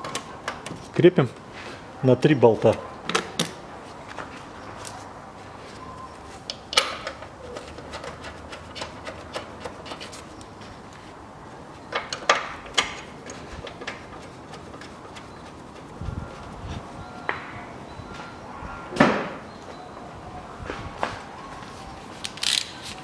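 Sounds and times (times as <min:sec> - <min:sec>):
hand tools clicking and knocking: 0:06.5 - 0:10.3, 0:11.9 - 0:15.9.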